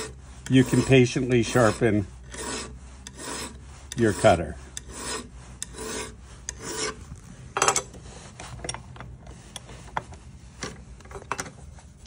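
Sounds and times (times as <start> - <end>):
file rasping on metal: 0.0 - 7.1.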